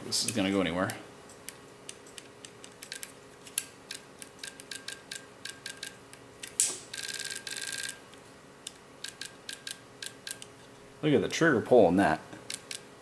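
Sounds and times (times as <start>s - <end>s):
solenoid rapid buzzing: 1.4s - 10.6s.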